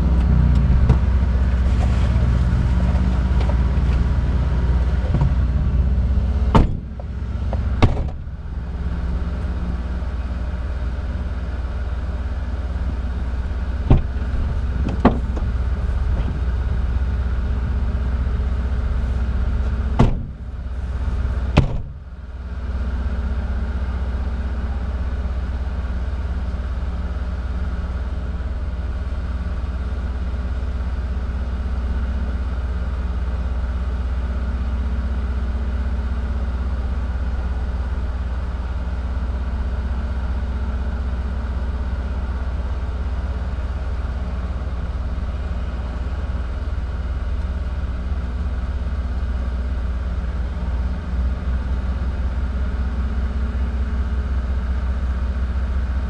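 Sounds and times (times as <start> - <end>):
engine idling: 0.0 - 56.0
sharp clunks: 6.5 - 8.3, 13.9 - 15.5, 20.0 - 20.4, 21.6 - 22.0.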